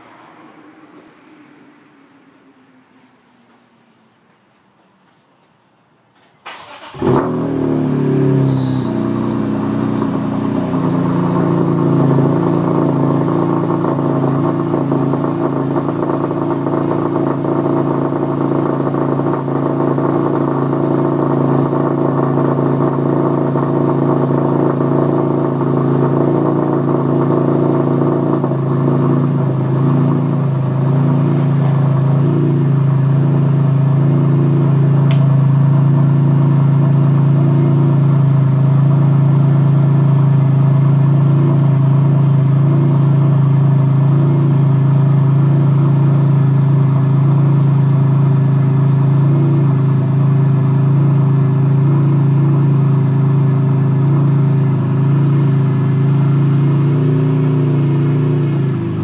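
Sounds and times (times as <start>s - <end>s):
car engine idling: 6.5s - 59.0s.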